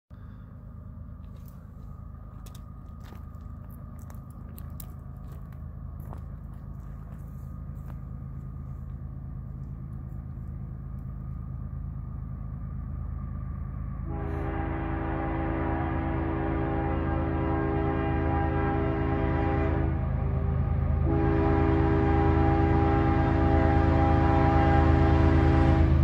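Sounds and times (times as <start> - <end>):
diesel locomotive rumble: 0.0 - 26.0
locomotive air horn chord: 14.0 - 20.1, 21.0 - 26.0.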